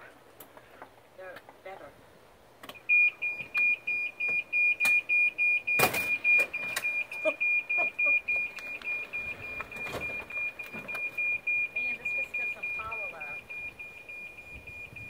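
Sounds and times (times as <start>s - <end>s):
reverse warning beeper: 2.7s - 15.0s.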